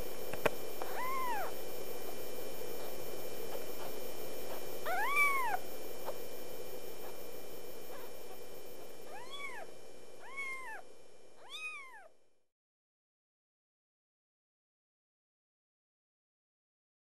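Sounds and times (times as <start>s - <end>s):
faint steady hum: 0.0s - 12.5s
kitten meowing: 0.8s - 1.5s, 4.8s - 5.6s, 9.1s - 10.8s, 11.4s - 12.1s.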